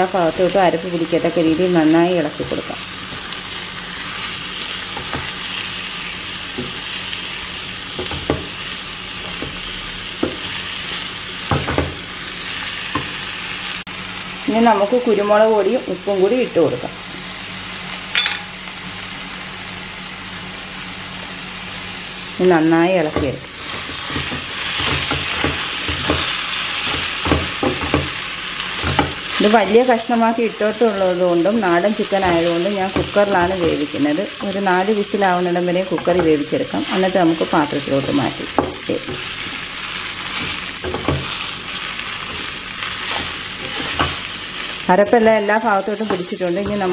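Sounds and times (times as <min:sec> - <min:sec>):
chicken sizzling in pan: 0:00.0 - 0:46.9
spatula scraping a pan: 0:42.2 - 0:44.3.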